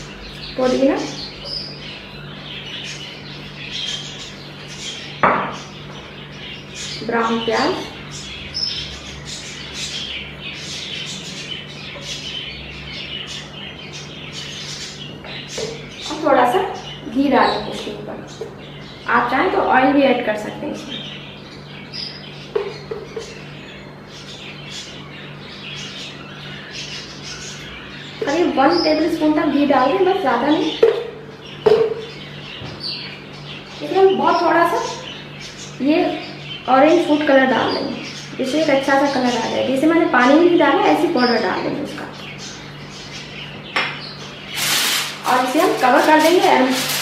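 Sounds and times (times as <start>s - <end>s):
small bird chirping: 0.0s - 19.1s.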